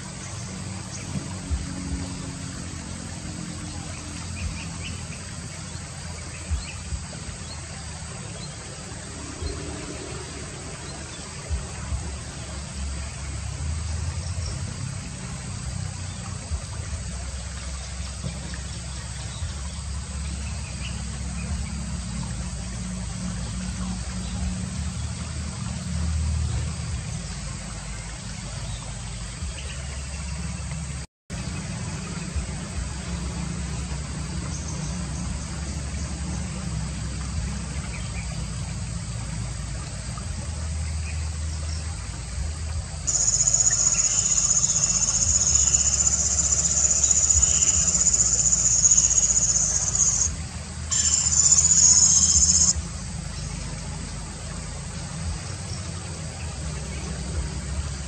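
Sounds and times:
even hiss: 0:00.0 - 0:58.0
steady low rumble: 0:00.0 - 0:58.0
bird calls: 0:43.1 - 0:50.3, 0:50.9 - 0:52.8.

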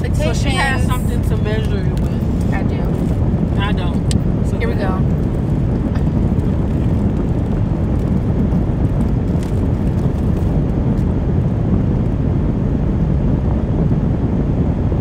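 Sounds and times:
faint crackles: 0:00.0 - 0:11.2
car cabin rumble: 0:00.0 - 0:15.0.

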